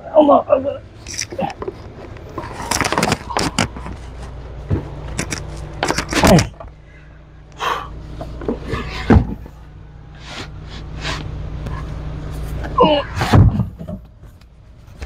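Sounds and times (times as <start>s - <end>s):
low steady hum: 0.0s - 15.0s
wooden crate knocking and scraping: 8.2s - 9.6s, 13.2s - 14.2s.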